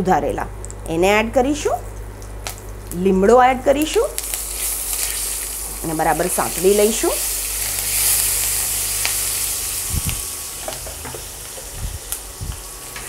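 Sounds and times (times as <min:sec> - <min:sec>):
spices sizzling in hot oil: 0:03.8 - 0:13.0.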